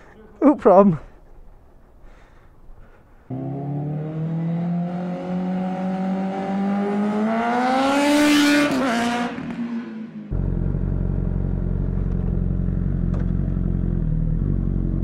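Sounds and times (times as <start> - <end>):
engine passing by rush: 3.3 - 12.8
racing engine accelerating: 3.3 - 15.0.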